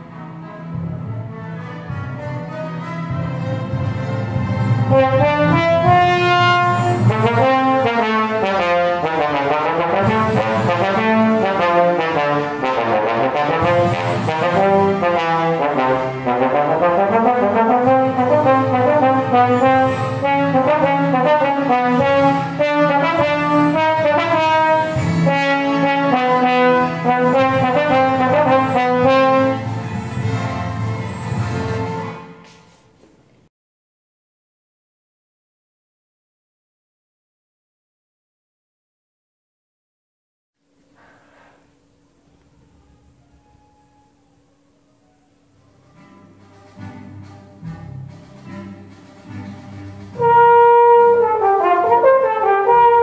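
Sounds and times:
solo trombone fast passage: 0:04.9 - 0:30.1, 0:50.1 - 0:53.0.

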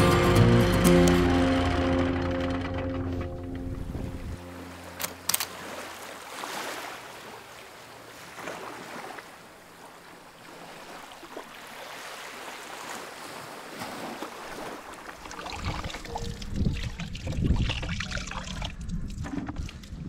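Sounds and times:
wind blowing over microphone: 0:03.5 - 0:04.4, 0:15.5 - 0:20.0
sea washing around boat: 0:03.5 - 0:19.7
sharp click: 0:05.0 - 0:05.5.

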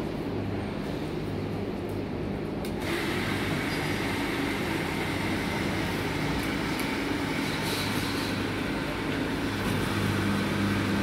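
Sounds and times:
steady low hum: 0:00.0 - 0:11.0
pressure washer whirring and hissing: 0:02.8 - 0:11.0.

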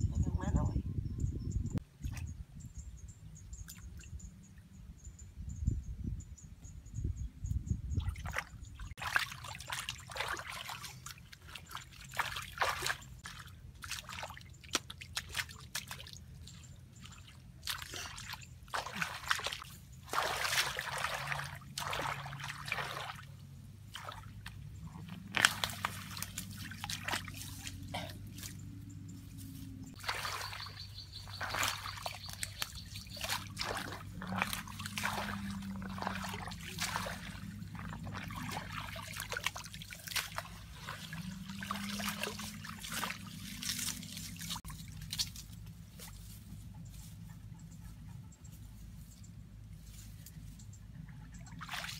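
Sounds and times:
hands splashing in muddy water: 0:08.0 - 0:23.3, 0:23.9 - 0:28.6, 0:30.0 - 0:45.6, 0:51.6 - 0:51.9
water trickling: 0:30.0 - 0:45.3.

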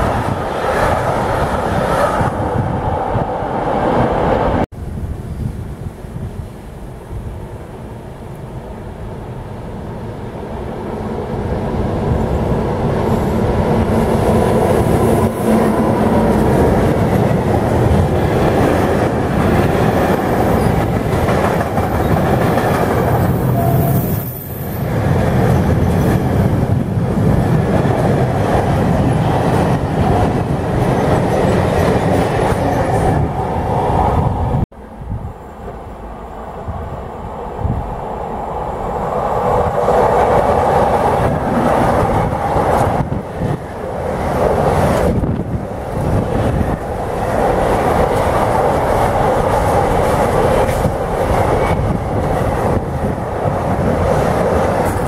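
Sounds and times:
freight train rumbling past: 0:00.0 - 0:55.0
high-pitched wheel squeal: 0:23.5 - 0:24.8.

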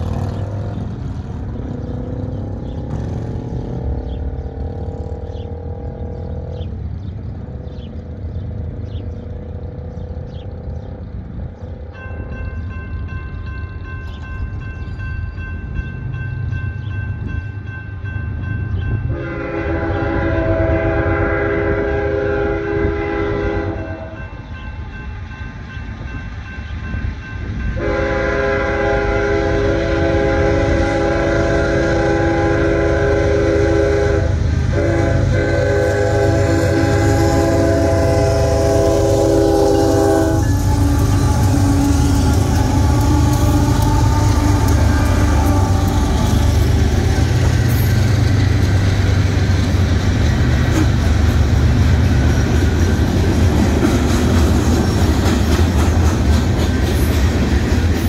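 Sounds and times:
locomotives rumbling past: 0:00.0 - 0:58.0
train chord horn blasts: 0:19.0 - 0:24.4, 0:27.7 - 0:48.2
wheels clicking over rail joints: 0:35.7 - 0:58.0.

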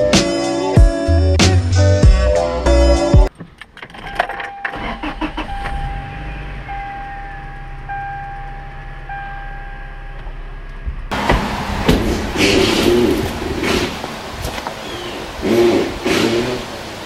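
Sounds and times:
dashboard warning chime: 0:04.0 - 0:10.6
truck engine idling: 0:04.5 - 0:15.4.

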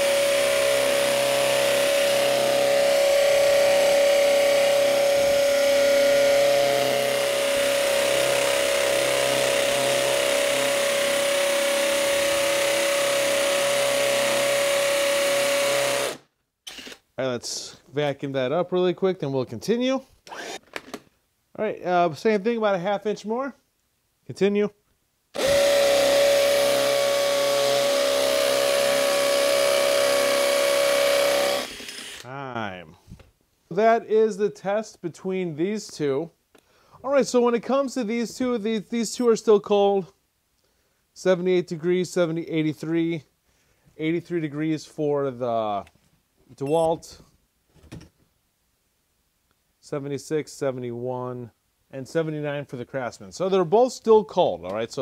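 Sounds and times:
drill bit grinding concrete: 0:00.0 - 0:16.2, 0:25.4 - 0:32.3
hammer drill motor hum: 0:00.0 - 0:17.0, 0:25.4 - 0:32.3.

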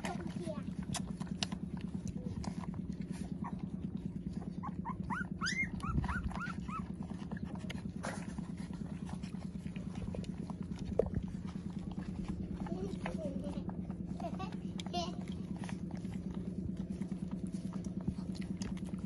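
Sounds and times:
fast low pulsing: 0:00.1 - 0:19.0
puppies whimpering: 0:02.2 - 0:08.0.

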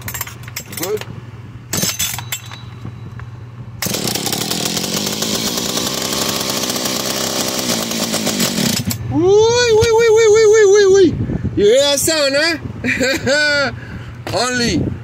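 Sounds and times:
chainsaw engine running: 0:03.8 - 0:09.1.

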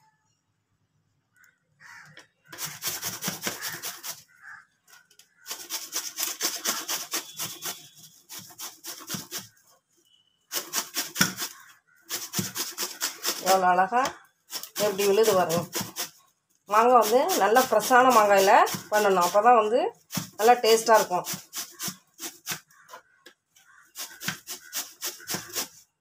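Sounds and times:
mango grated on metal grater: 0:02.5 - 0:04.3, 0:05.4 - 0:09.6, 0:10.5 - 0:13.8, 0:14.5 - 0:22.9, 0:23.7 - 0:25.8.

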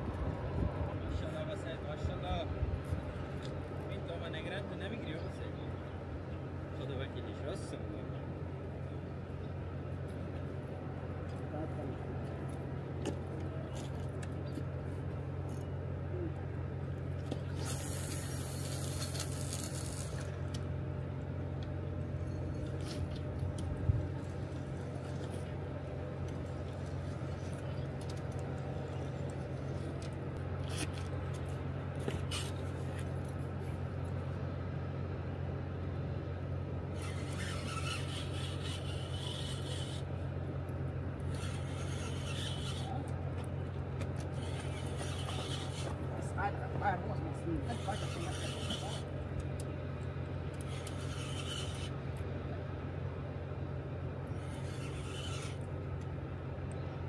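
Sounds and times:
fishing reel whirring: 0:17.5 - 0:20.5, 0:36.9 - 0:40.4, 0:41.2 - 0:43.1, 0:44.2 - 0:46.5, 0:47.6 - 0:49.1, 0:50.5 - 0:52.0, 0:54.3 - 0:55.8.

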